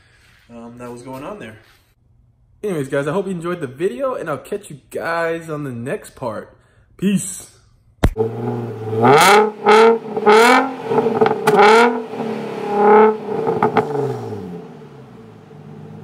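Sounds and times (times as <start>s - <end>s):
car engine revving over idle: 8.2s - 16.0s.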